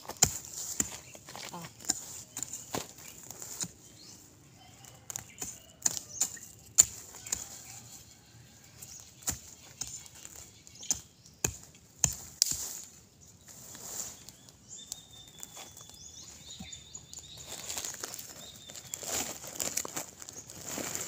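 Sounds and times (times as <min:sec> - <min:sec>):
dry grass and leaves rustling: 0:00.0 - 0:21.0
scraping and digging soil: 0:00.0 - 0:21.0
blade chopping into soil: 0:00.1 - 0:03.8, 0:05.1 - 0:07.6, 0:08.9 - 0:12.8.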